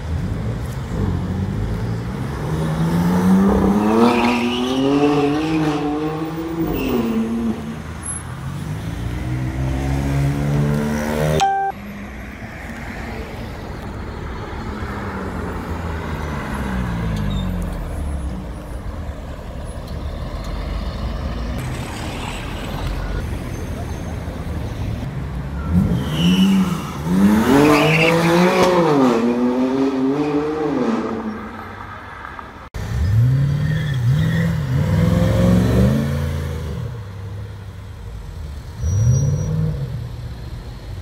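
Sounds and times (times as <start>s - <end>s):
street traffic: 0.0s - 41.0s.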